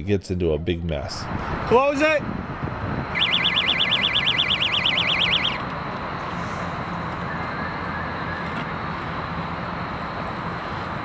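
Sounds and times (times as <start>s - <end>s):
steady background rush: 1.1s - 8.4s
electronic warbling ringing tone: 3.1s - 5.6s.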